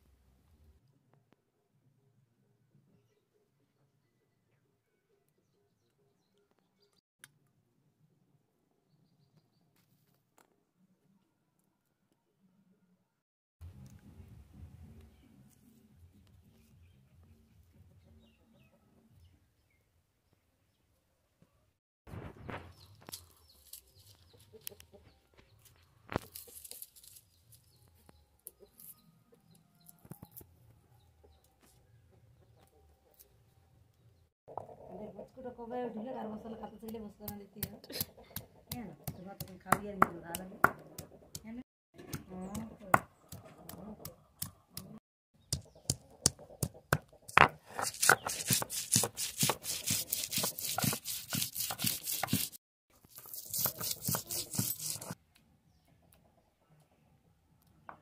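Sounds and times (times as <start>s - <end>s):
faint chicken clucking: 14.9s - 19.9s, 22.4s - 26.8s, 28.4s - 39.5s, 42.0s - 48.2s, 55.3s - 58.0s
garlic cloves being peeled: 22.9s - 24.8s, 26.1s - 29.0s, 45.5s - 55.2s
stone tapping: 45.5s - 48.6s
gritty stone scraping: 47.3s - 55.2s.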